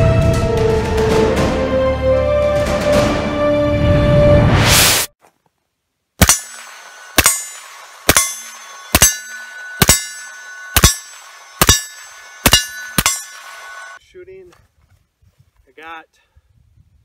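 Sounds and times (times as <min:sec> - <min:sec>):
lingering metallic ring: 0:06.2 - 0:14.0.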